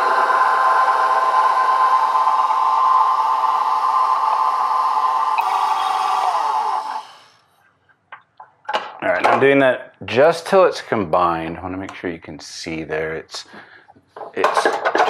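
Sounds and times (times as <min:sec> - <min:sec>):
motor whine: 0:00.0 - 0:07.4.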